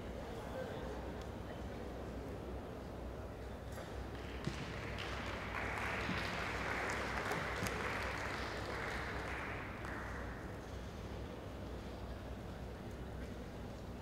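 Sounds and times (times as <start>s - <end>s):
audience applause: 4.8s - 10.4s.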